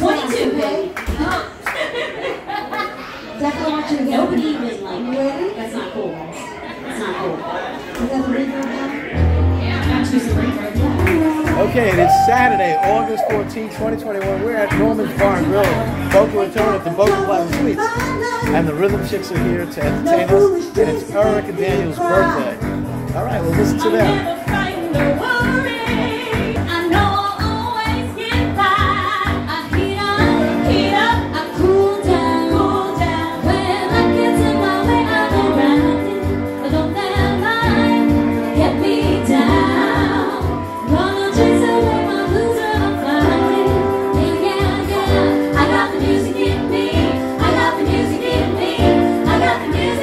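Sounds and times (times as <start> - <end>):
dance music with steady beat: 9.9 - 50.0
female vocal trio singing: 23.8 - 50.0.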